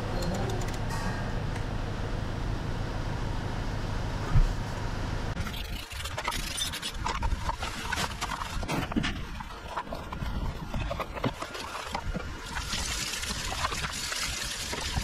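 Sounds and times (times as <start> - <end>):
steady background noise: 0.0 - 15.0
paintbrush scrubbing plastic: 5.8 - 15.0.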